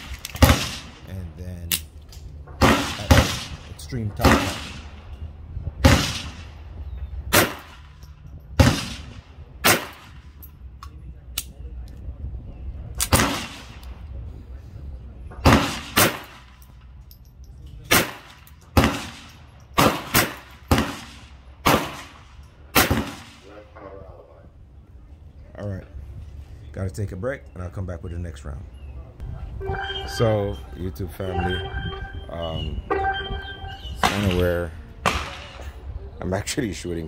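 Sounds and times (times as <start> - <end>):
pistol shots: 0.0 - 1.0, 2.6 - 3.6, 4.2 - 5.0, 5.8 - 6.5, 7.3 - 7.9, 8.6 - 10.2, 13.0 - 14.0, 15.4 - 16.5, 17.9 - 23.5, 34.0 - 35.7.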